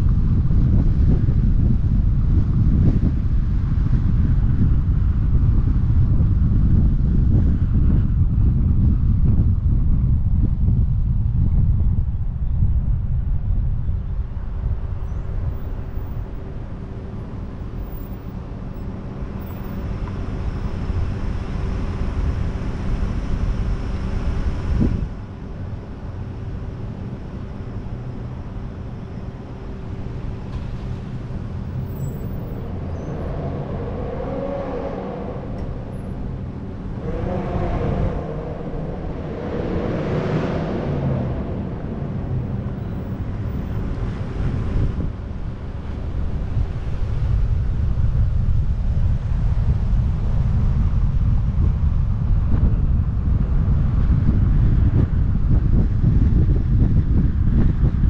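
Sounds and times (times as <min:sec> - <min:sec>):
wind and road noise rumble: 0:00.0 - 0:58.0
traffic running: 0:12.8 - 0:58.0
nearby vehicles passing: 0:14.3 - 0:55.6.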